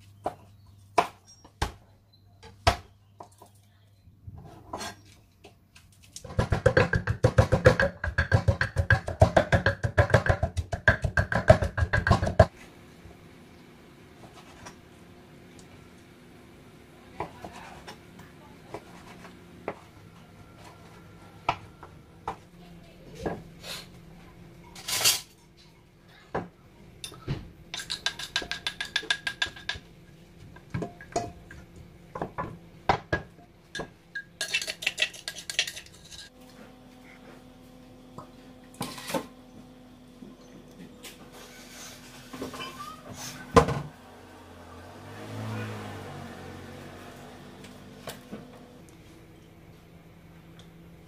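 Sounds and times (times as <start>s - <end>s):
pestle knocking in metal bowl: 6.2s - 12.5s, 27.7s - 29.9s.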